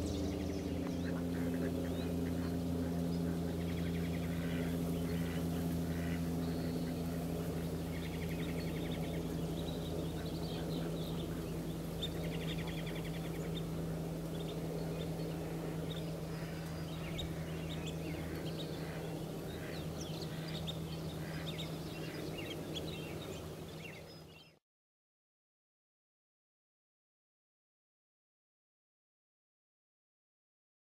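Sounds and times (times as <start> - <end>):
steady low hum: 0.0 - 24.6.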